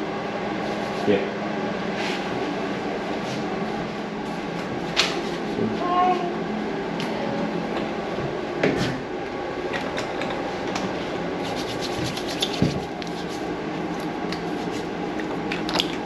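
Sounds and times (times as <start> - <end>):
steady background hum: 0.0 - 16.0
hands rubbing together: 11.4 - 13.5.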